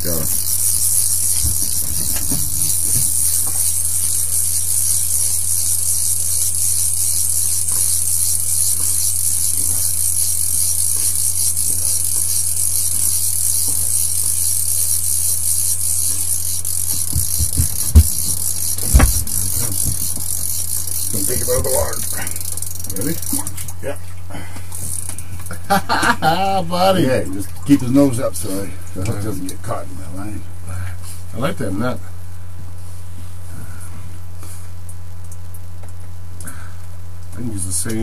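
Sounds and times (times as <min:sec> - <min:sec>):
fishing reel ratcheting whir: 0:00.0 - 0:23.7, 0:24.8 - 0:25.8
sharp knocks: 0:17.0 - 0:20.2.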